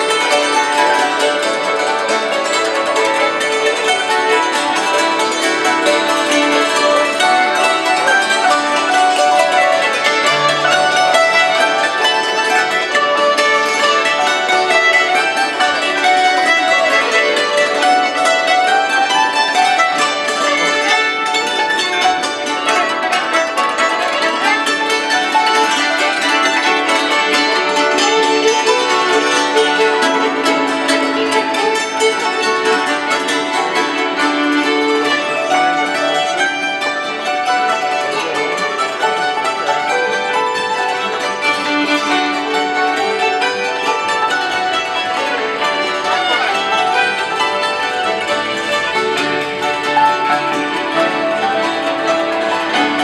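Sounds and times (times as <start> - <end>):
fiddle: 0.0 - 53.0
hammered dulcimers: 0.0 - 53.0.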